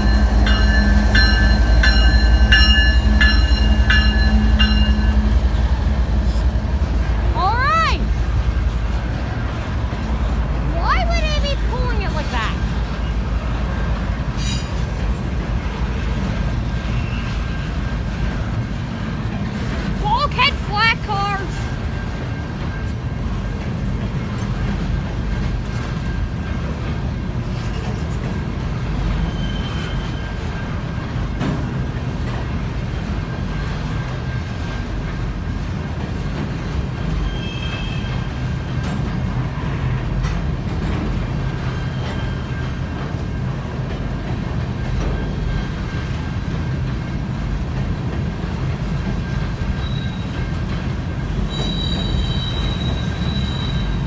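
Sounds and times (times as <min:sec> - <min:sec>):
train wheels rumbling on rails: 0:00.0 - 0:54.0
high-pitched wheel squeals: 0:29.3 - 0:30.4, 0:51.5 - 0:54.0.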